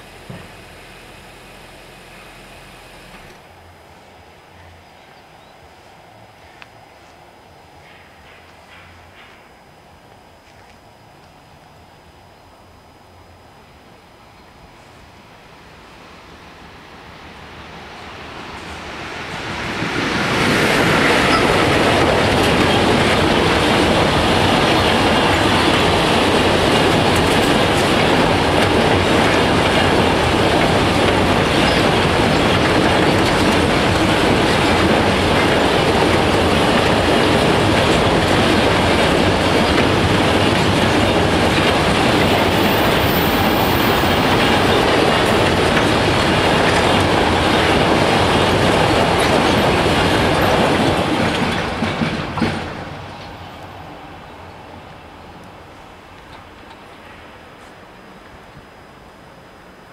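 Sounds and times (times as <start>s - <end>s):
freight train rolling past: 14.4s - 59.9s.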